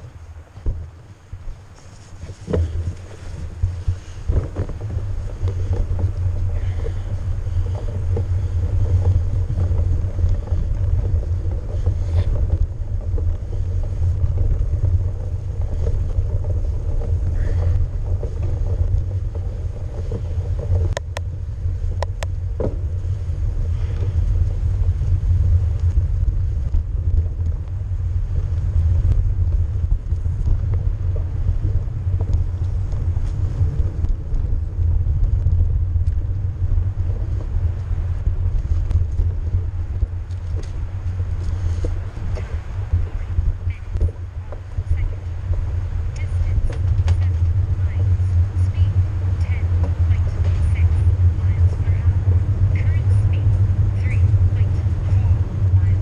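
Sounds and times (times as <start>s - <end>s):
tyre and bike rattle: 0.0s - 56.0s
wind buffeting microphone: 0.0s - 56.0s.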